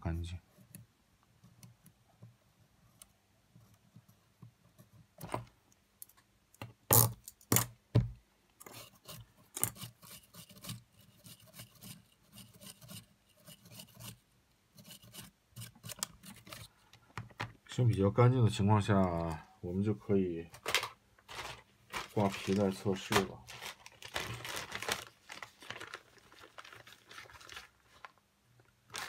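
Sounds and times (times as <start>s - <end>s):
metal tool scraping mechanism: 8.6s - 14.2s.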